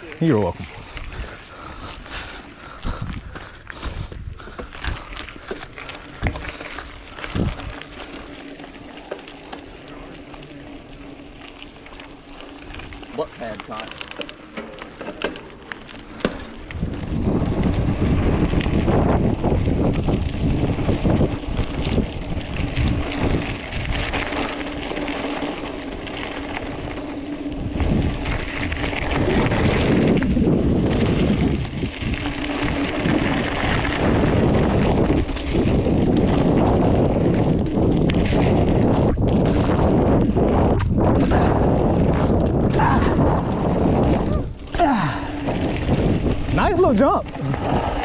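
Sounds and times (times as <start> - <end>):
wind buffeting microphone: 0.0 - 9.1, 15.9 - 48.0
bike tyres on dirt trail: 0.0 - 48.0
bike knocks and rattles: 13.2 - 46.6.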